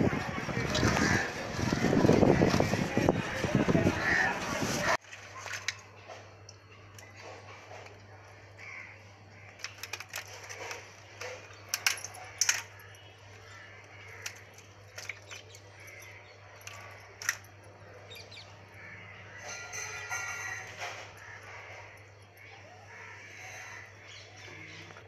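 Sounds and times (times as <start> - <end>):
crab shells clicking on steel plate: 9.5 - 13.1, 13.9 - 17.5.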